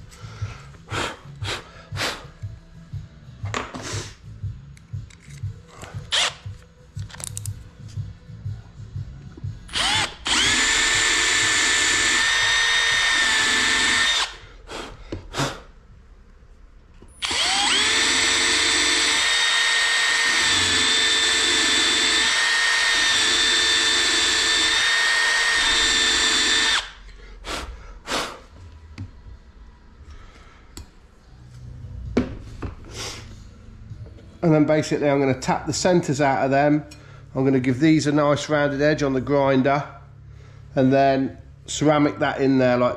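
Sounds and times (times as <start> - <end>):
cordless drill boring into metal: 9.7 - 14.4, 17.2 - 27.0.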